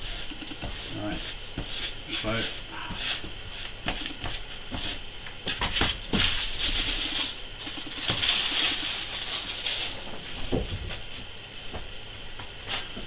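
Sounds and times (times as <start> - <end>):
paint roller rasping hiss: 0.0 - 5.0.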